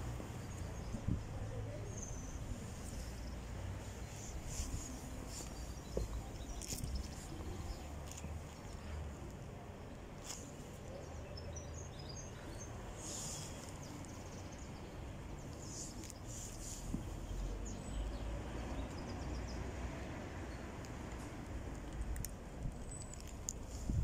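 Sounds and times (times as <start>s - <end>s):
small birds chirping: 0.0s - 24.0s.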